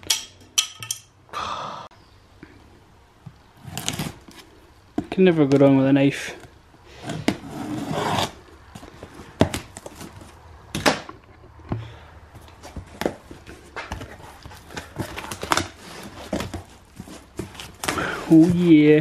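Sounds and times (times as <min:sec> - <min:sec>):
cardboard box being opened: 0:12.6 - 0:18.8
packing paper rustling: 0:12.6 - 0:19.0.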